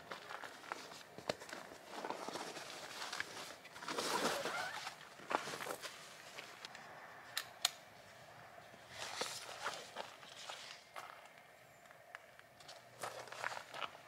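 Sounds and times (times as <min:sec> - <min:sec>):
nylon fabric rustling: 0:00.1 - 0:06.6.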